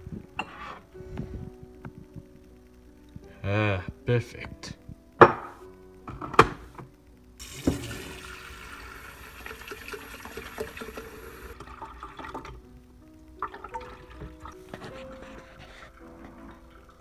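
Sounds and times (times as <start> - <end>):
background music: 0.0 - 17.0
faucet running into carafe: 7.4 - 12.6
water being poured: 7.4 - 12.6, 13.4 - 17.0.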